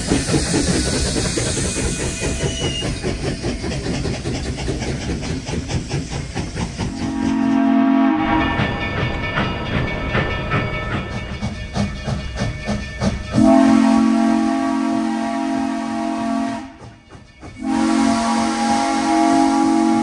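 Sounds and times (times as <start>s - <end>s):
steam locomotive chuffing: 0.0s - 20.0s
low steam whistle blast: 6.9s - 8.6s, 13.4s - 16.8s, 17.6s - 20.0s.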